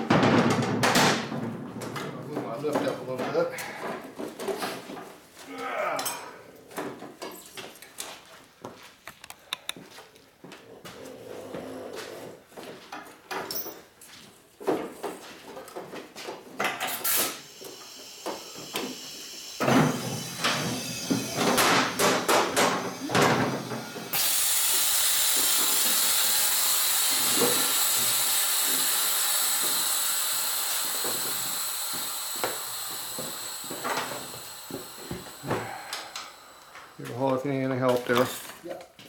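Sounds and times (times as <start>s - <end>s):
clattering and knocks: 0.0s - 2.9s
compressed air hissing from hose: 17.0s - 37.2s.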